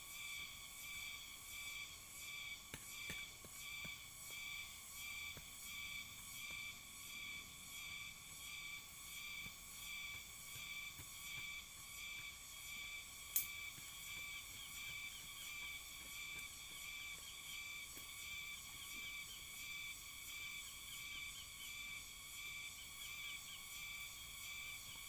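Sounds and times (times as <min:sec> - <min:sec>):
insects chorus pulsing: 0:00.0 - 0:25.0.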